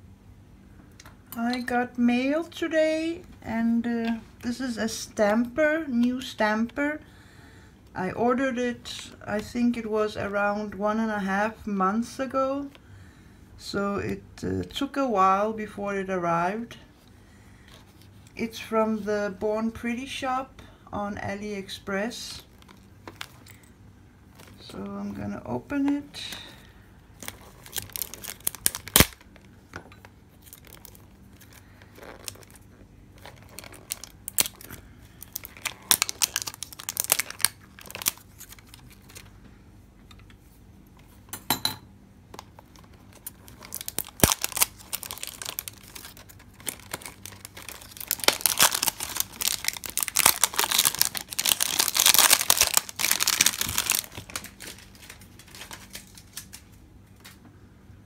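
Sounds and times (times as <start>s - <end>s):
cellophane crinkling and tearing: 22.3s - 25.2s, 25.9s - 39.4s, 42.3s - 57.4s.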